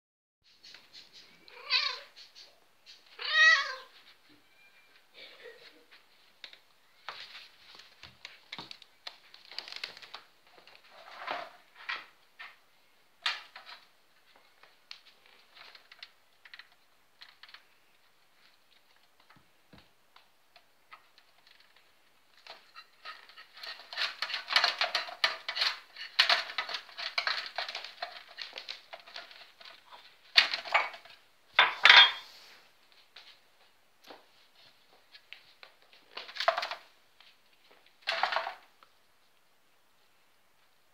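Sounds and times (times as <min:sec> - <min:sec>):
dishes and metal tray clattering: 0:30.5 - 0:32.3.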